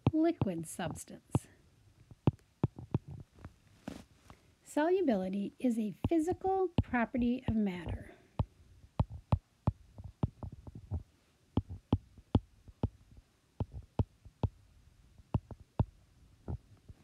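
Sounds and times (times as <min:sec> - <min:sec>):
stylus tapping on glass screen: 0:02.6 - 0:03.2, 0:06.0 - 0:08.0, 0:09.0 - 0:11.0, 0:11.6 - 0:12.0, 0:13.6 - 0:14.6.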